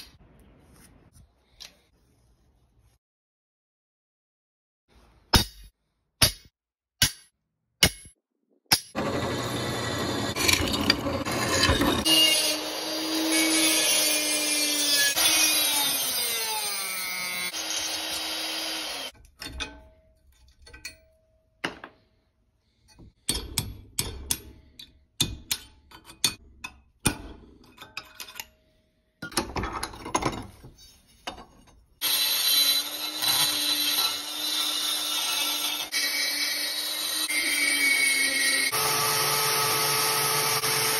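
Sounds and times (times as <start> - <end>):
rotary tool grinding steel: 9.2 - 19.2, 32.0 - 40.9.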